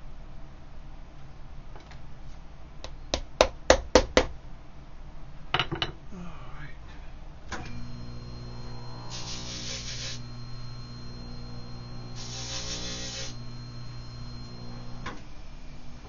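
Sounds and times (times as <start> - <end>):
small electric motor humming: 7.6 - 15.3
hissing bursts: 7.8 - 15.0.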